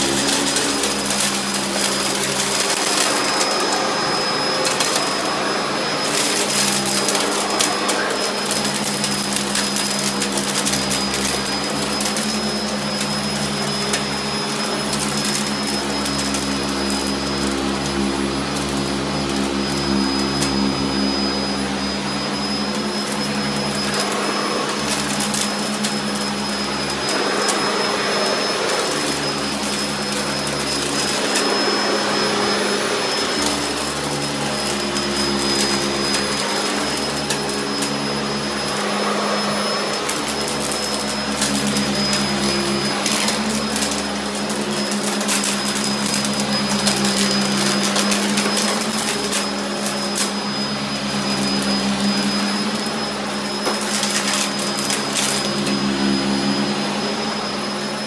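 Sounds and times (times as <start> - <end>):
vacuum cleaner motor humming: 0.0 - 58.0.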